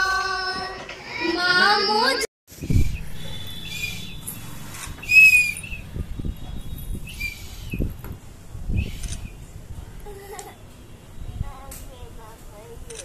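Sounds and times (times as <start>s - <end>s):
toy whistle toots: 5.0s - 5.8s.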